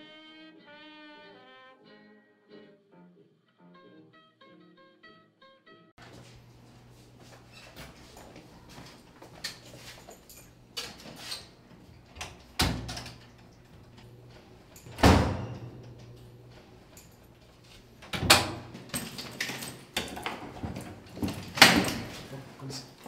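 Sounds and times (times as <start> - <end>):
door thuds with latch clicks: 14.8 - 16.2, 18.1 - 20.2.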